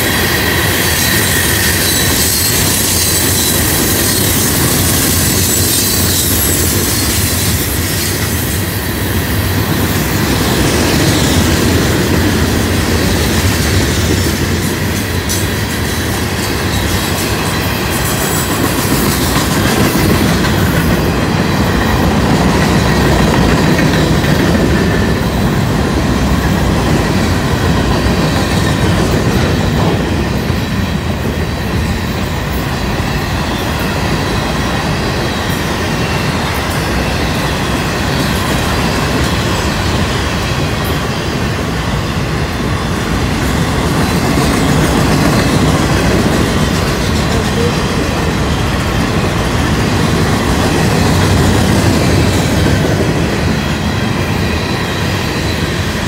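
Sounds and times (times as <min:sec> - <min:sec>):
high wheel squeal: 0:00.0 - 0:08.9
train wheels rumbling on rails: 0:00.0 - 0:56.0.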